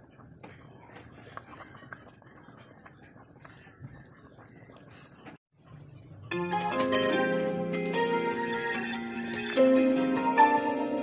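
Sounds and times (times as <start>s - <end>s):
soup bubbling in a pot: 0.0s - 6.4s.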